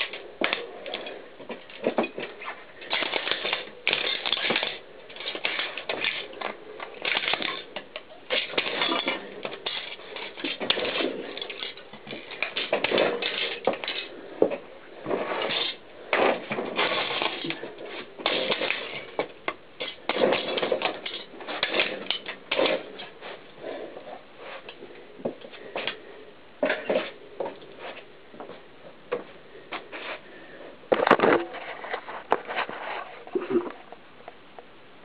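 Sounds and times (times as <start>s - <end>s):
plastic cracking under bike tyre: 0.0s - 23.2s.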